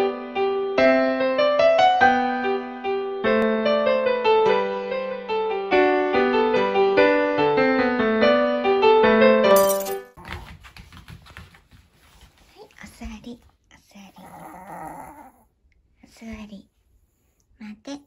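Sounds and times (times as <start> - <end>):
electric piano melody: 0.0 - 9.6
glass shattering: 9.5 - 10.1.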